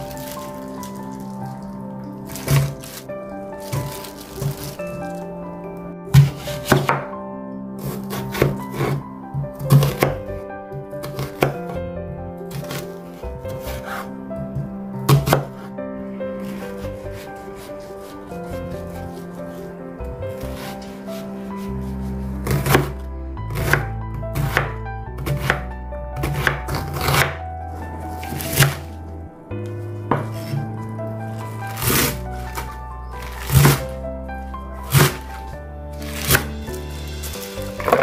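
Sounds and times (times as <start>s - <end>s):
background music: 0.0s - 38.0s
knife cutting onion on board: 6.2s - 7.0s, 7.8s - 9.0s, 9.6s - 10.2s, 11.1s - 11.6s, 13.5s - 14.1s, 15.1s - 15.7s, 22.4s - 23.8s, 24.4s - 25.6s, 26.2s - 27.4s, 28.2s - 28.9s, 31.7s - 33.8s, 36.0s - 36.5s.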